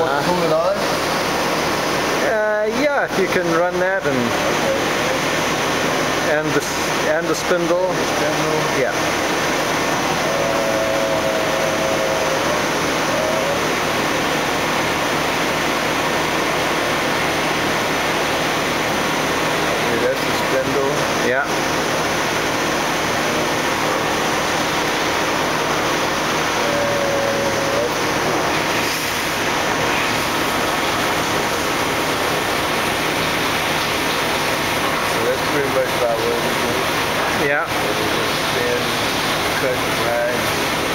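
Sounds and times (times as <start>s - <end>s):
grinder coolant hissing: 0.0s - 40.9s.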